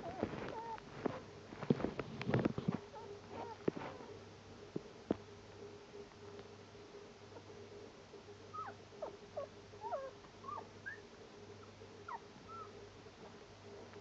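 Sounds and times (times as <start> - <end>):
faint steady hum: 0.0 - 14.0
puppy squeaking and whimpering: 8.5 - 12.8.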